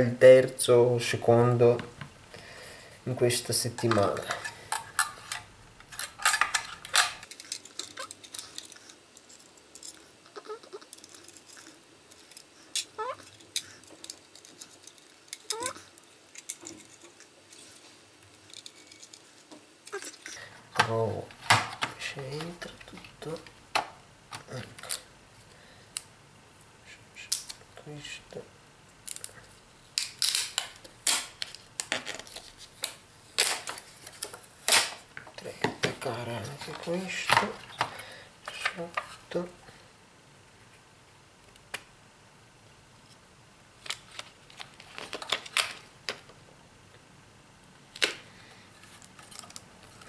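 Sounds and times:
small hard parts clicking: 3.8s - 17.6s.

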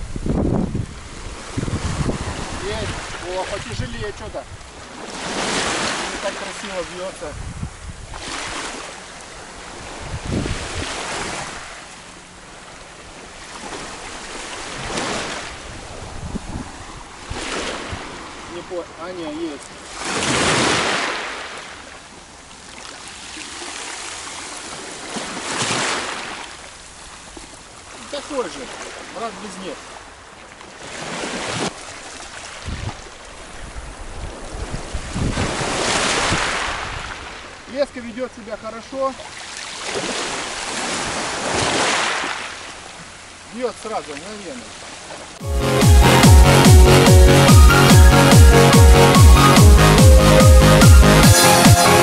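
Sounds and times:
wind buffeting microphone: 0.0s - 5.8s, 7.2s - 8.7s, 9.4s - 11.6s, 14.2s - 18.5s, 32.6s - 37.5s
sea waves washing ashore: 0.0s - 52.0s.

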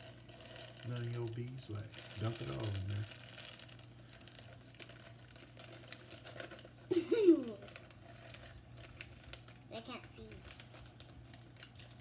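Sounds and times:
pellets falling into metal pitcher: 0.0s - 9.6s
plastic bag crinkling: 0.0s - 12.0s.

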